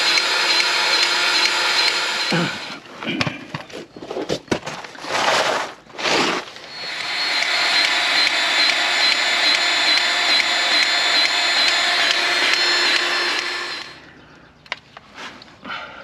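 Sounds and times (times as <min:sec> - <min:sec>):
machine motor whining: 0:00.0 - 0:02.8, 0:06.6 - 0:14.0.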